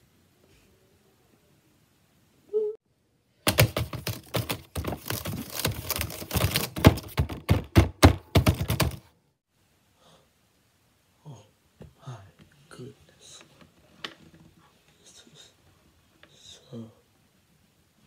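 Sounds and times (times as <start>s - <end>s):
fast typing on laptop keyboard: 3.5s - 9.1s.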